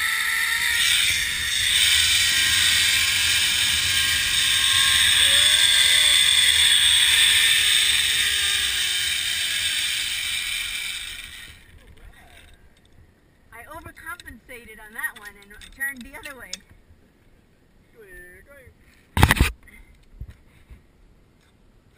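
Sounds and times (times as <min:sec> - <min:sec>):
zip line pulleys whizzing: 0:00.0 - 0:12.6
faint whine: 0:00.0 - 0:14.8.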